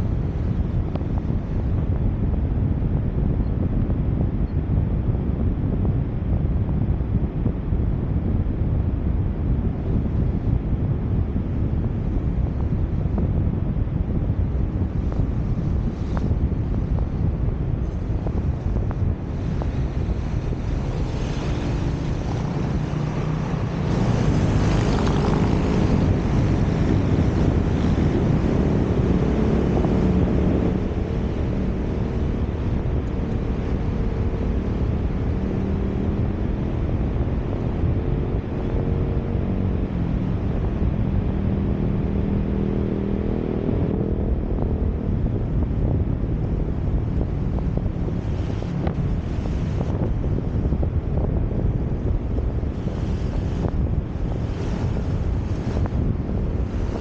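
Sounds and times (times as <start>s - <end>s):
engine and road rumble: 0.0s - 57.0s
wind rushing over microphone: 0.0s - 57.0s
faint drifting engine tones: 17.9s - 38.8s.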